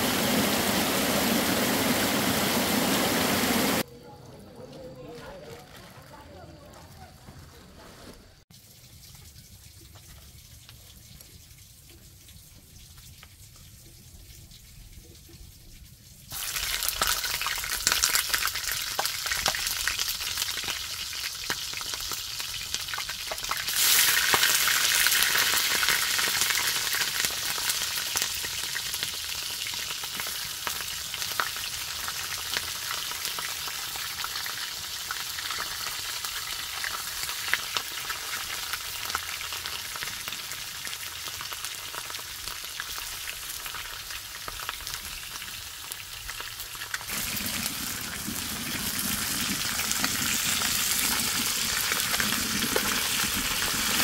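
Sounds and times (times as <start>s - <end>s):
food sizzling in hot oil: 0.0s - 3.9s, 15.9s - 54.0s.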